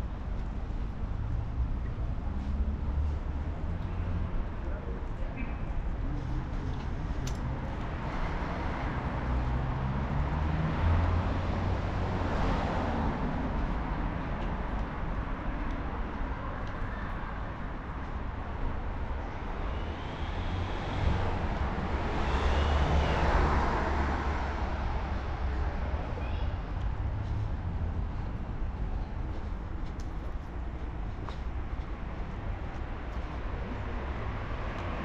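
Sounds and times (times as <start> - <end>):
traffic engine rumble: 0.0 - 35.0.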